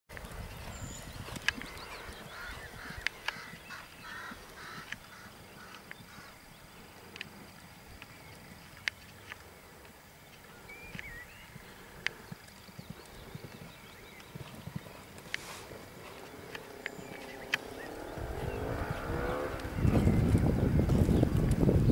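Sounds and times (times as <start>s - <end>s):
faint hoofbeats on sand: 0.1s - 21.9s
birds calling: 0.2s - 21.9s
sharp clicks: 12.0s - 18.3s.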